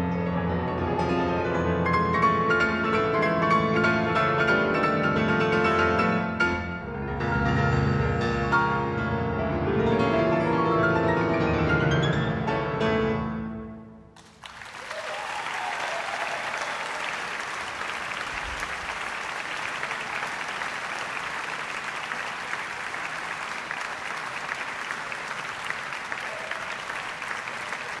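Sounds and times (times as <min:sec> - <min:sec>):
audience applause: 0:14.2 - 0:28.0.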